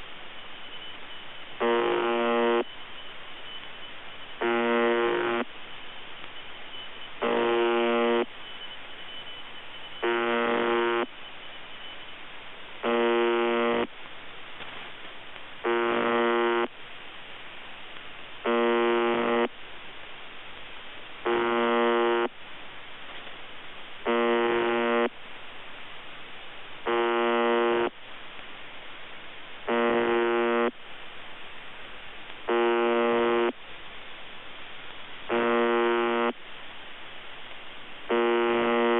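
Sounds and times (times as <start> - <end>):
harsh buzzing radio tone: 0.0 - 13.9, 15.6 - 16.7, 18.4 - 19.6, 21.2 - 22.4, 24.0 - 25.2, 26.8 - 28.0, 29.6 - 30.8, 32.4 - 33.6, 35.3 - 36.4, 38.1 - 38.9
radio static hissing: 0.0 - 38.9.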